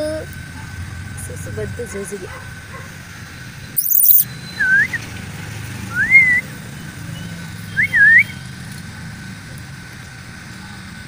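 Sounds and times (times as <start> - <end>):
person whistling: 4.0 - 5.0, 5.9 - 6.4, 7.8 - 8.2.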